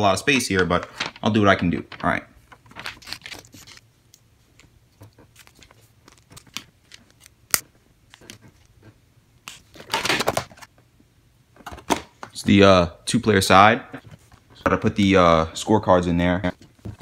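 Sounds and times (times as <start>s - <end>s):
plastic clicks and rustles: 0.9s - 7.4s.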